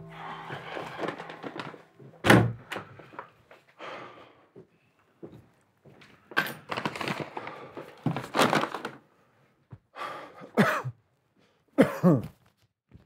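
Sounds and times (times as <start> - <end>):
man sighing: 0.0 - 1.9
man breathing heavily: 0.0 - 5.0, 9.9 - 10.6.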